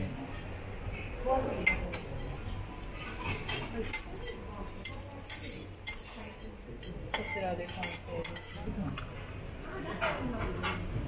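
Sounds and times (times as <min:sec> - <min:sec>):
metal spatulas scraping griddle: 0:01.5 - 0:09.1.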